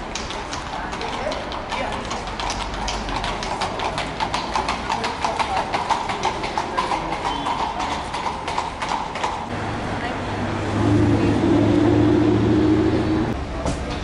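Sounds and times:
horse hooves clip-clopping: 0.0 - 9.6.

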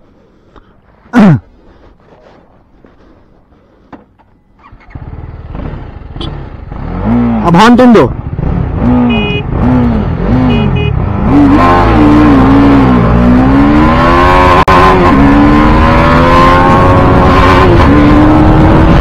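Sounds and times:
motorcycle engine revving: 4.6 - 19.0
short horn beeps: 9.1 - 9.5, 10.4 - 11.0.

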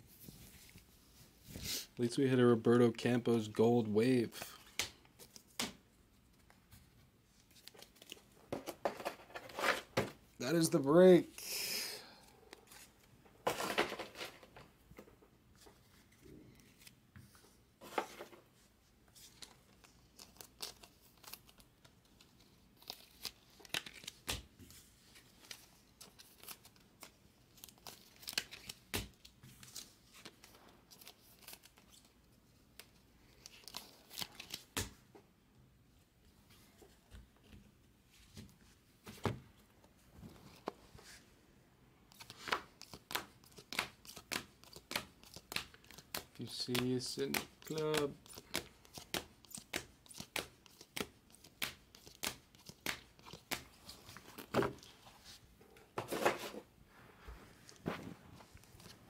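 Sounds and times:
cards tapping and clicking: 42.2 - 53.7.

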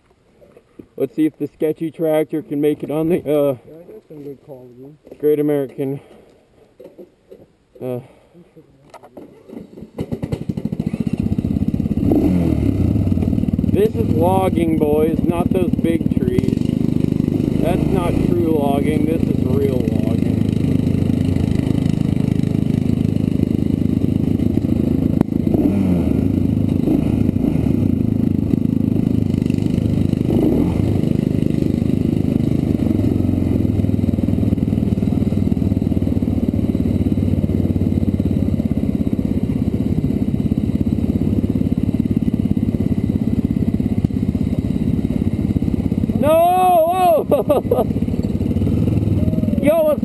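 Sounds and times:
vehicle rattling: 9.3 - 46.3
small engine running: 10.0 - 50.0.

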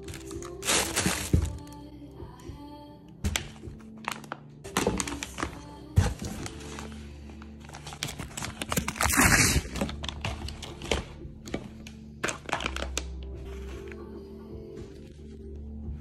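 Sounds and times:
paper packing crinkling: 0.0 - 1.6, 3.3 - 14.0
background music: 0.0 - 16.0.

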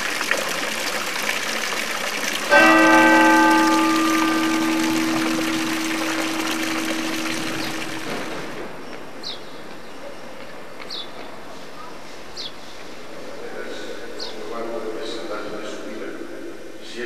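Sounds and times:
splashing water: 0.0 - 8.8
large bell humming: 2.5 - 8.8.

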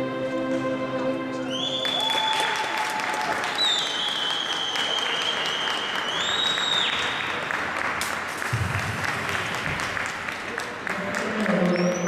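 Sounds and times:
long high whistle: 1.5 - 7.3
spectators applauding: 1.6 - 12.0.

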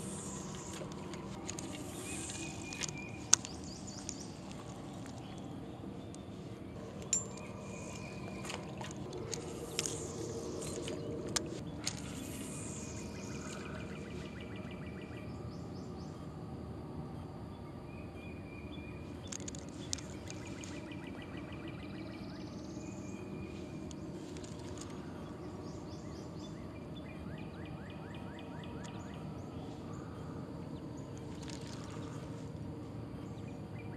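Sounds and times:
rod and reel clicks: 0.0 - 6.3, 6.9 - 13.6, 19.2 - 20.9, 23.8 - 25.3, 31.1 - 32.6
outdoor background noise: 0.0 - 33.9.

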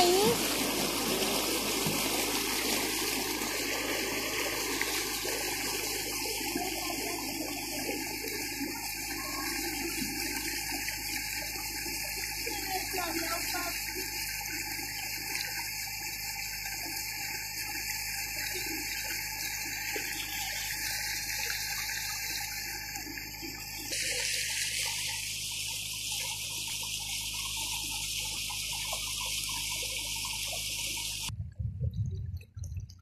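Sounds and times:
water rushing along boat hull: 0.0 - 31.3
low bumps: 31.3 - 33.0.

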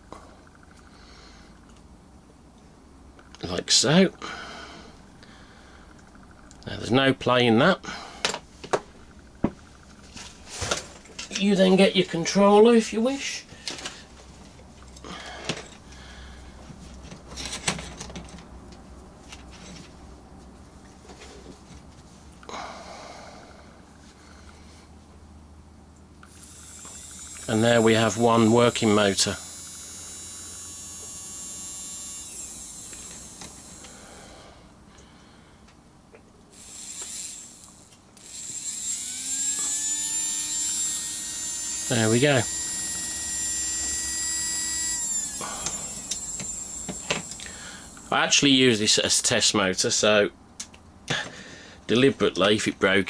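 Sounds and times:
small electric motor whining: 26.2 - 34.2, 36.5 - 48.4.

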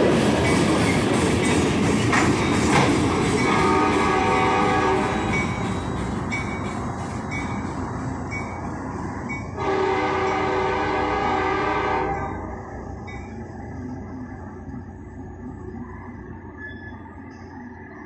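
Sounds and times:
train wheels rolling on rails: 0.0 - 18.0
locomotive air horn blast: 3.5 - 5.3, 9.6 - 12.4.

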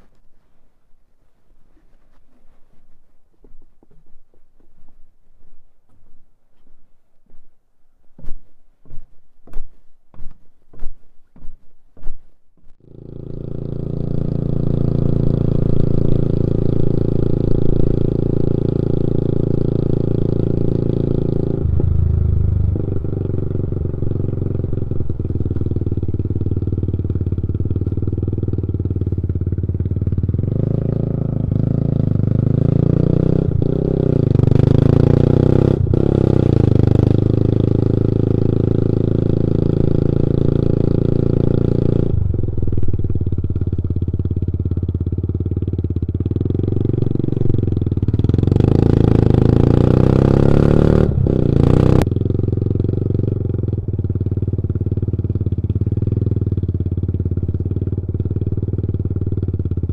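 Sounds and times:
motorcycle engine running: 11.4 - 59.9.

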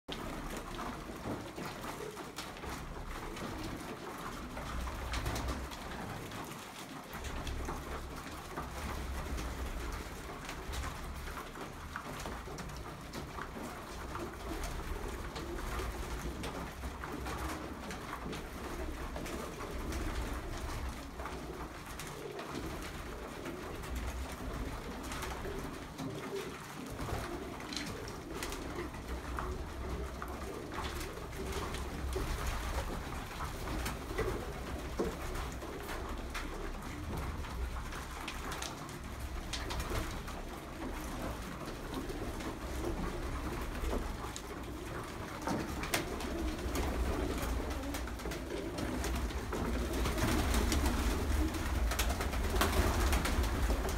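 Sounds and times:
pigeons cooing: 0.2 - 53.9
wing flaps: 12.7 - 53.9.

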